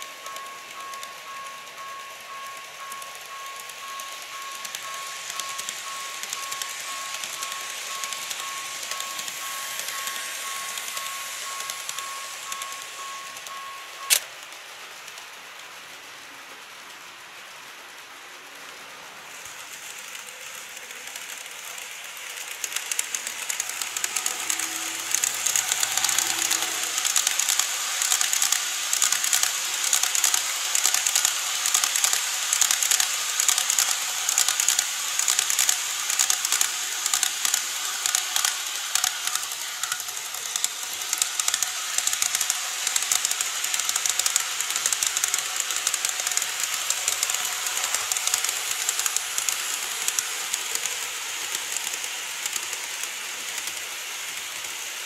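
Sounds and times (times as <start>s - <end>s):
model train wheels clattering: 0.0s - 55.0s
motor hiss: 22.8s - 54.5s.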